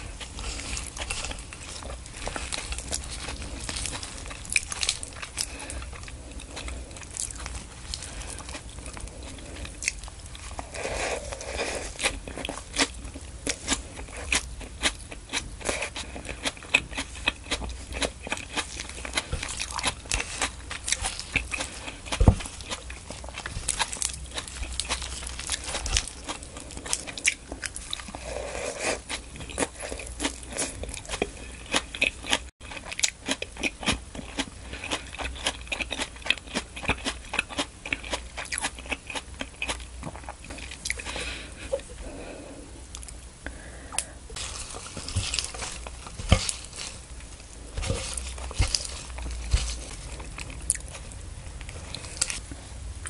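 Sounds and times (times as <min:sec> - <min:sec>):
chewing crisp greens: 0:00.0 - 0:42.2, 0:44.0 - 0:52.8.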